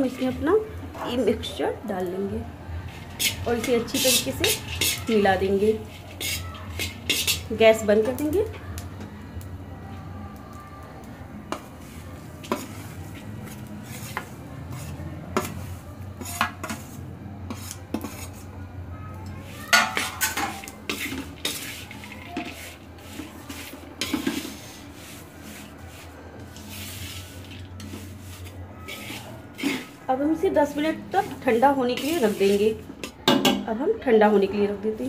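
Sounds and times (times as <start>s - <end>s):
spatula scraping metal pan: 2.8s - 8.4s, 11.5s - 18.5s, 19.5s - 33.2s.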